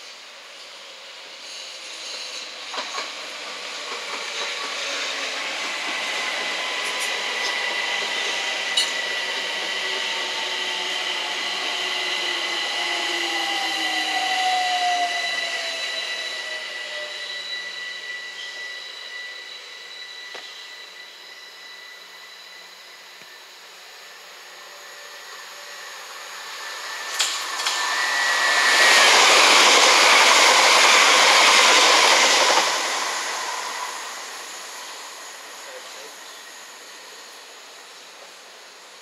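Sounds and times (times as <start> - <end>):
train wheels rumbling on rails: 1.4 - 17.5, 25.0 - 38.6
train motor whine: 1.4 - 39.0.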